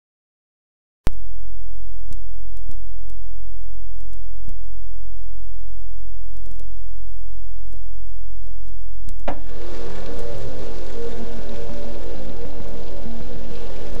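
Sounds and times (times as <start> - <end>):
electrical mains hum: 1.1 - 14.0
clicks and crackles: 2.1 - 3.3, 6.2 - 6.8, 7.7 - 13.2.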